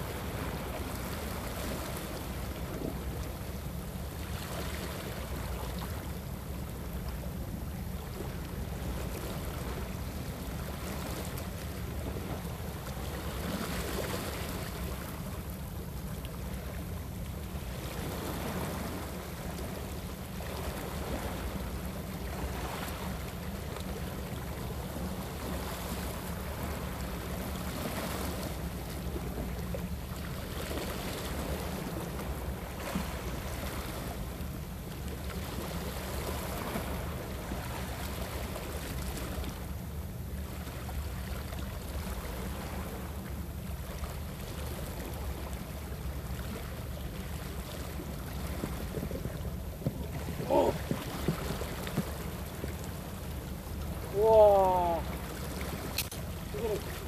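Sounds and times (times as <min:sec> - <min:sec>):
sea water washing against rocks: 0:48.4 - 0:53.1, 0:53.8 - 0:57.0.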